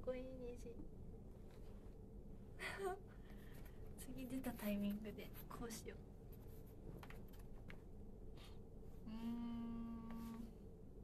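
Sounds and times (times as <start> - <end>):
woman humming: 9.0 - 10.6.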